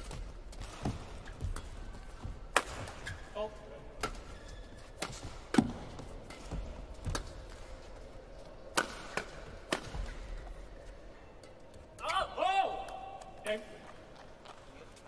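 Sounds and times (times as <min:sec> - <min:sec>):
rackets smacking shuttlecock: 0:00.0 - 0:03.4, 0:04.0 - 0:08.0, 0:08.6 - 0:10.6.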